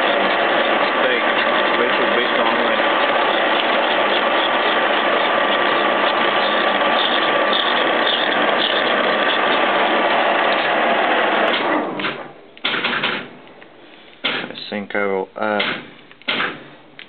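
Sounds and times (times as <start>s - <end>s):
machine whine: 0.0s - 13.6s.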